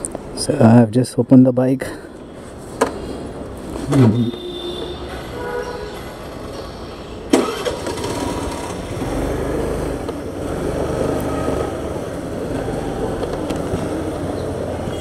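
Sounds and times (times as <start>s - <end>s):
scooter engine running: 7.4s - 14.8s.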